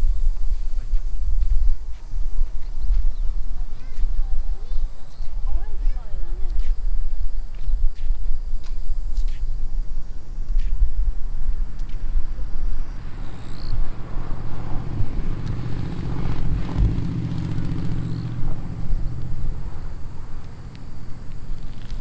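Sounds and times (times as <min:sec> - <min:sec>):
passing vehicle engine hum: 0:11.5 - 0:22.0.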